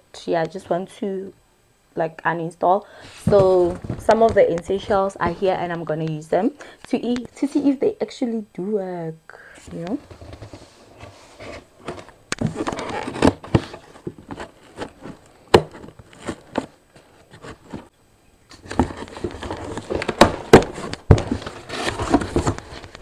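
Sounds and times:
cardboard flaps pulled open: 11.4s - 16.7s
packing tape scratched and cut: 12.3s - 15.0s.

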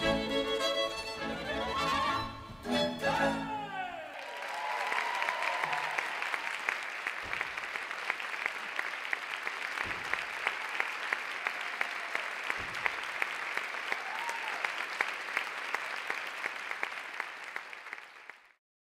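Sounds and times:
large audience applauding: 3.6s - 18.6s.

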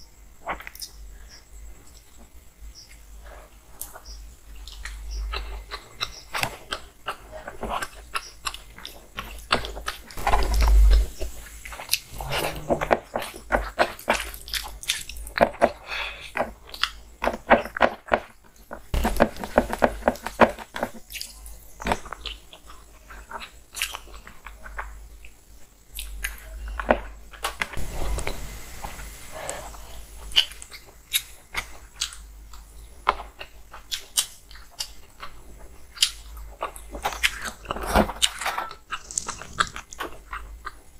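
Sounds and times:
low bump: 10.2s - 13.1s
chewing and lip smacking: 30.3s - 40.9s.

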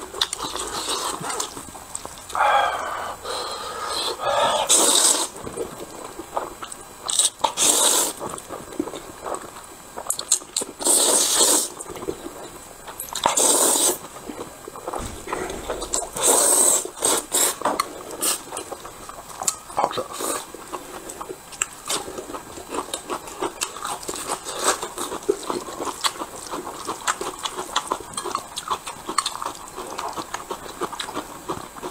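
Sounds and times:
person chewing: 0.1s - 12.5s, 19.3s - 31.9s
person slurping noodles: 2.4s - 5.4s.

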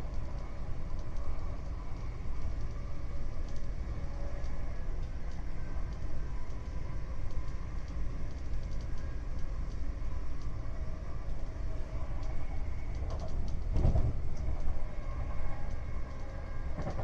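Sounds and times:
faint steady whine: 0.0s - 17.0s
train wheels rumbling on rail: 0.0s - 17.0s
train clatter: 12.9s - 17.0s.

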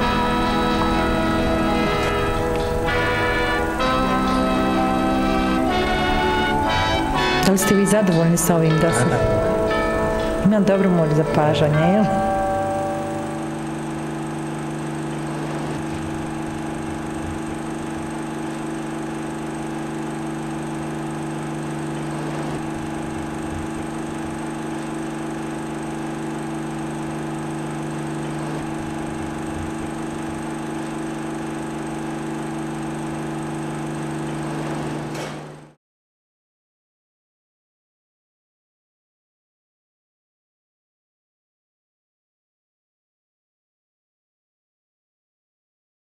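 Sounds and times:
machine hum: 0.0s - 35.8s.

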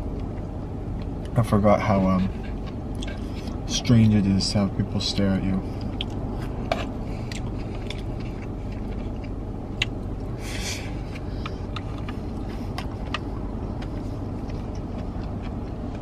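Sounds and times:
street traffic rumble: 0.0s - 16.0s
chewing clicks: 2.4s - 3.5s, 5.8s - 10.3s, 11.2s - 16.0s.

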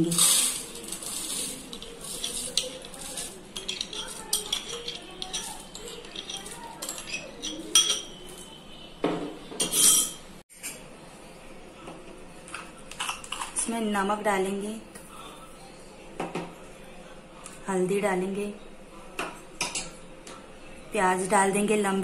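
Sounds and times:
lentils pouring into a pot: 0.0s - 6.8s
spoon scraping glass bowl: 0.0s - 8.6s.

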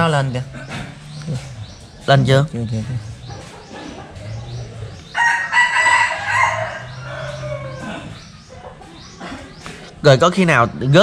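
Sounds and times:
rooster crowing: 5.1s - 8.3s.

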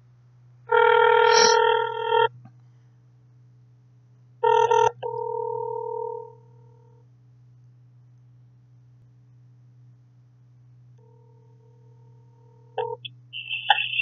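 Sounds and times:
steady low hum: 0.0s - 14.0s
phone call tones: 0.7s - 2.3s, 4.4s - 6.3s, 12.8s - 14.0s.

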